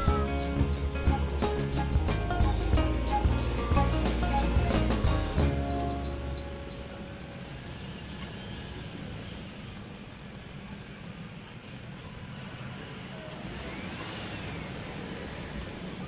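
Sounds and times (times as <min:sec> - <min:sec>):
faint whistle: 0:00.0 - 0:00.6
low engine rumble: 0:00.0 - 0:13.8.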